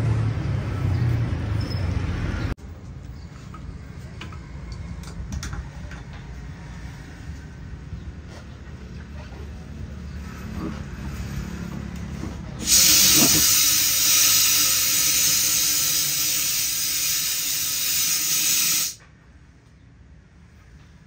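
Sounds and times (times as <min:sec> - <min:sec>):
compressed air hissing: 0:12.6 - 0:19.0.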